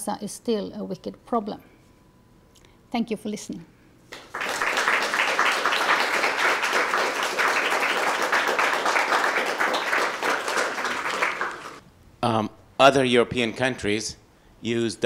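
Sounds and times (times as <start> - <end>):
audience applauding: 4.2 - 11.8.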